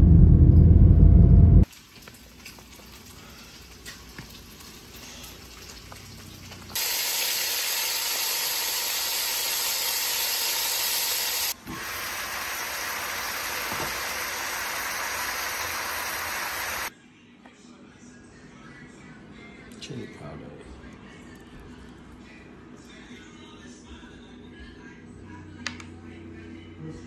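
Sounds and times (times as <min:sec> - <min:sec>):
fish sizzling in a pot: 0:01.6 - 0:16.9.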